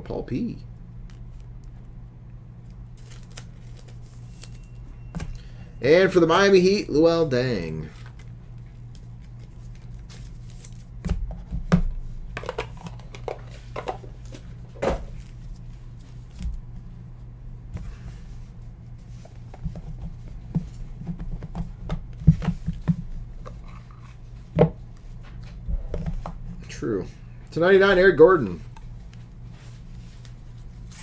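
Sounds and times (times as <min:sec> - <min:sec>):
low electrical hum: 0:00.0 - 0:31.0
cards clicking and rustling: 0:03.0 - 0:04.7.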